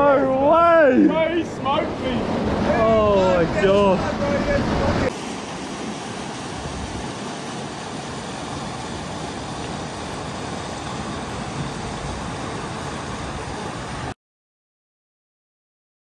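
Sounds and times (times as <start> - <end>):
river water rushing over rocks: 4.7 - 14.1.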